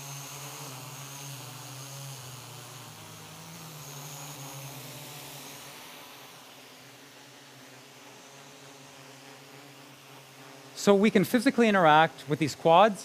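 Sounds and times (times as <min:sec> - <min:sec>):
quadcopter propellers buzzing: 0:00.0 - 0:13.0.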